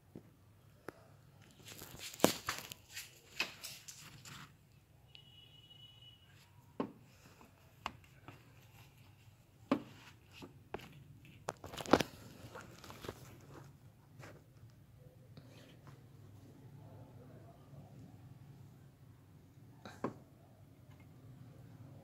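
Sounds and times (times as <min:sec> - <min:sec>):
rustling: 0:01.4 - 0:04.7, 0:08.0 - 0:14.8.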